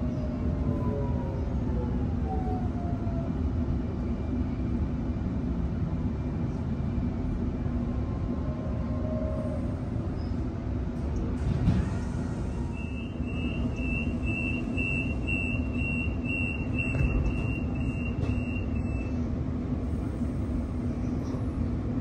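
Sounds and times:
train low hum: 0.0s - 22.0s
train door warning beeps: 12.4s - 19.2s.

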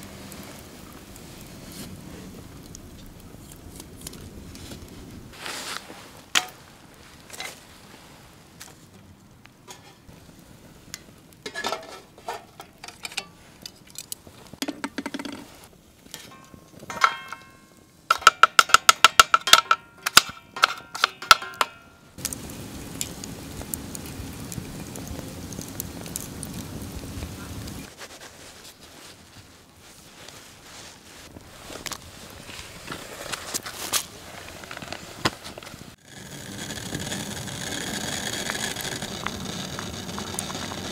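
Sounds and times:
steady hiss: 0.0s - 16.3s, 21.7s - 40.9s
twigs crackling in wood stove: 0.0s - 40.9s
metal cookware clinking: 11.5s - 13.4s, 16.2s - 21.9s.

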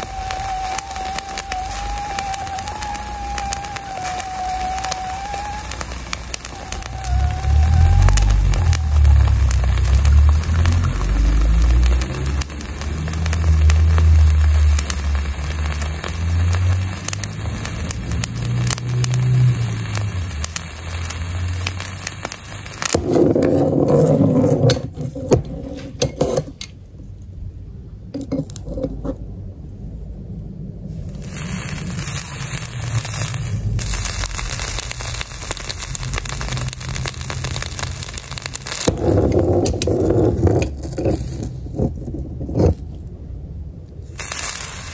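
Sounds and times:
scattered knocks and crackles: 0.0s - 19.3s, 32.9s - 43.1s
hot iron sizzling on skin: 0.0s - 23.1s, 31.0s - 41.9s, 44.1s - 44.9s.

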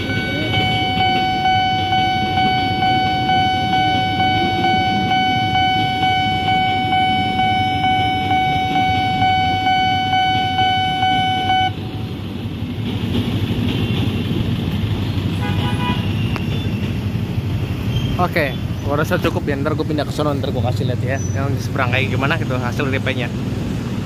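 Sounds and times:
level crossing alarm tone: 0.0s - 11.8s
electric train rumbling: 0.0s - 24.0s
idling traffic: 0.0s - 24.0s.

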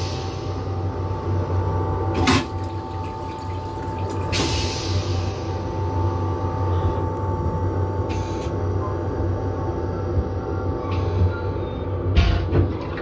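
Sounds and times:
train toilet flushing: 0.0s - 6.7s, 10.9s - 13.0s
moving train hum: 0.0s - 13.0s
rinse water hissing: 2.2s - 5.9s.

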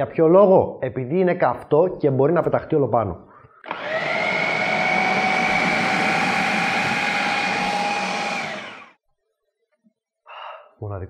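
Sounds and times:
food processor motor whining: 3.6s - 9.0s.

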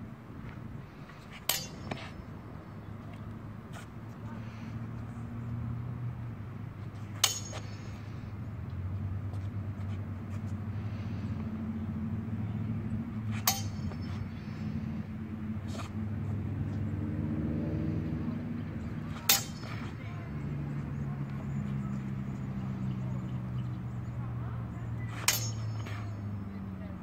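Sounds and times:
steady low hum: 0.0s - 27.0s
sword blades clashing: 1.4s - 2.2s, 7.2s - 8.0s, 13.3s - 14.4s, 19.1s - 20.0s, 25.1s - 26.4s.

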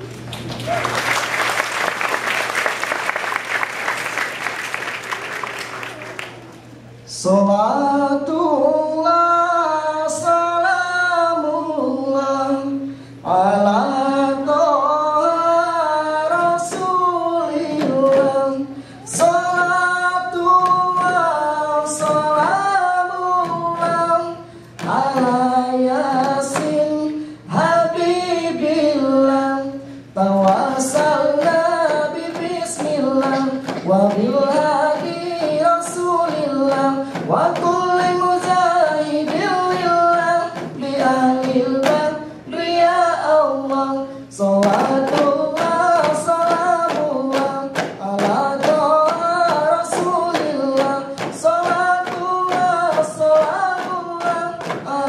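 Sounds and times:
hand claps: 0.1s - 6.6s, 44.6s - 55.0s.

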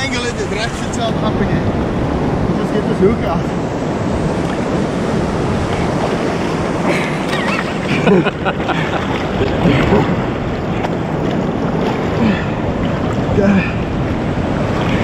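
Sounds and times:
sea surf washing: 0.0s - 15.0s
wind buffeting microphone: 0.0s - 15.0s.

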